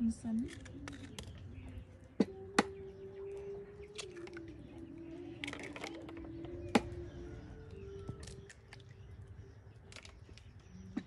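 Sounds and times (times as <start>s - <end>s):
low wavering drone: 0.0s - 11.0s
eggshell crackles: 0.3s - 1.6s, 3.3s - 7.1s, 7.7s - 9.0s, 9.8s - 11.0s.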